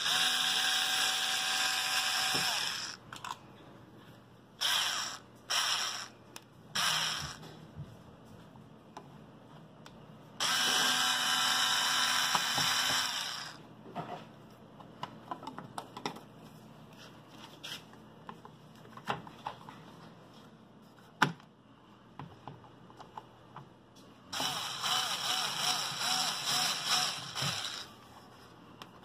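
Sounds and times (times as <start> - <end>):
cordless screwdriver motor whirring: 0.0 - 3.0, 4.6 - 6.1, 6.8 - 7.4, 10.4 - 13.6, 24.3 - 27.9.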